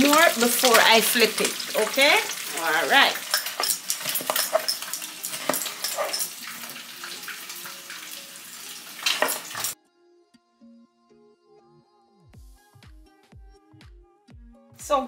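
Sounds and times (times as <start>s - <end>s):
fish sizzling in frying oil: 0.0s - 9.8s.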